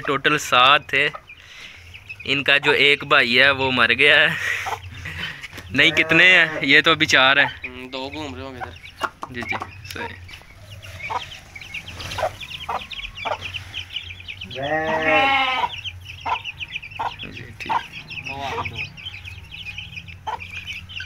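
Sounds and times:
chicks peeping: 0.0s - 21.0s
hen clucking: 0.0s - 21.0s
long bleat: 5.7s - 6.6s, 14.5s - 15.7s.

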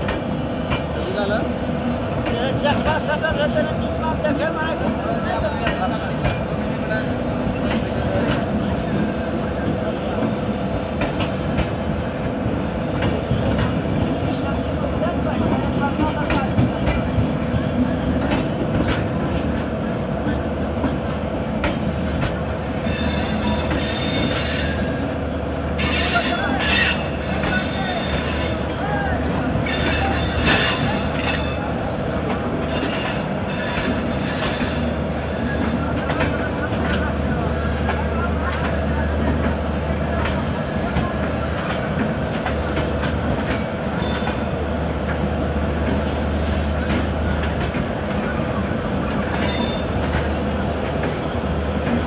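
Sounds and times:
train wheels rumbling on rails: 0.0s - 52.0s
wheels squealing on rails: 7.4s - 11.4s, 22.8s - 25.2s, 25.8s - 39.1s, 43.8s - 44.6s, 48.2s - 50.3s.

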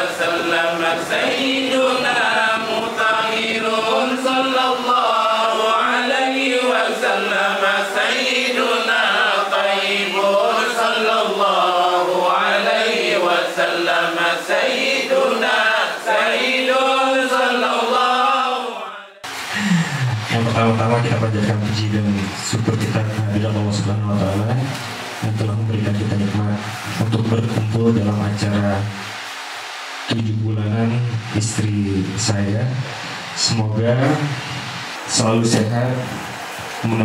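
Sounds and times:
man chanting into a microphone: 19.6s - 29.1s.

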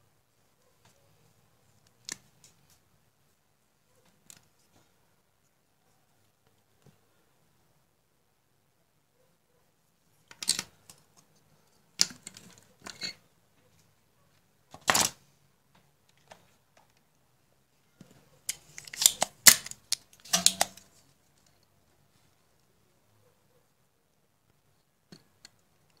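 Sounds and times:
small parts and tools handled: 10.1s - 13.2s, 18.0s - 21.8s.

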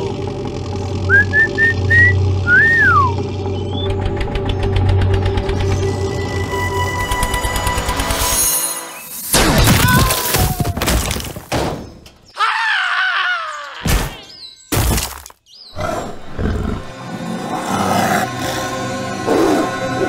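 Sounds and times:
dramatic background music: 2.2s - 9.3s, 16.8s - 20.0s
wavering falling pitched cry: 12.4s - 13.9s.

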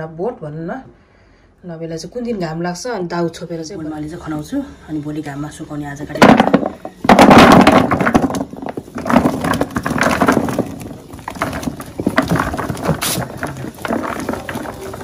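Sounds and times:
vegetable pieces clattering into bucket: 6.2s - 15.0s.

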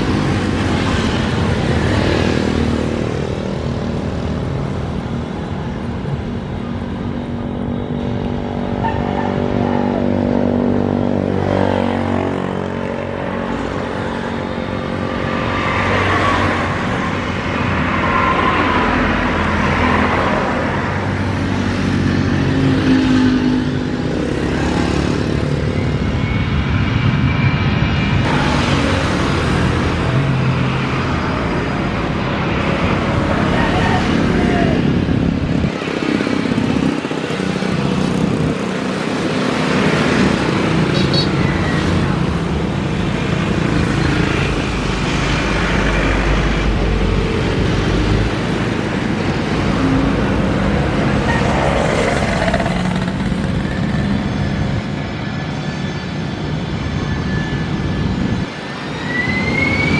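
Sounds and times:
jet engines taxiing: 13.1s - 59.9s.

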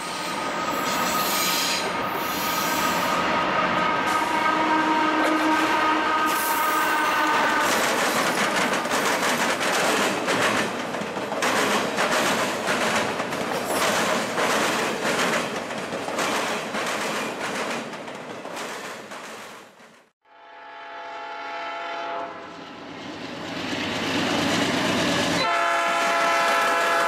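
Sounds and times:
train horn: 0.0s - 7.8s, 20.2s - 22.5s, 25.4s - 27.0s
train cars rumbling: 0.0s - 20.1s
wheels clacking over track: 7.6s - 19.6s.

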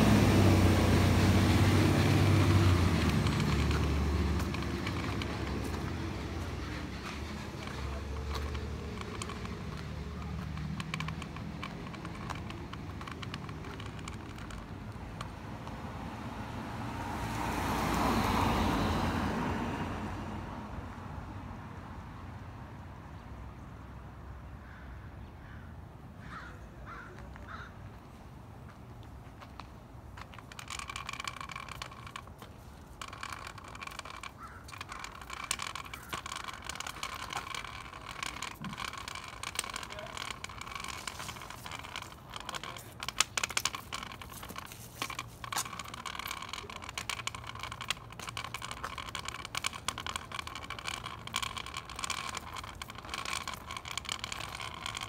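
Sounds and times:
low engine hum: 0.0s - 21.4s
phone handling clicks and scrapes: 1.6s - 15.8s, 30.2s - 55.0s.

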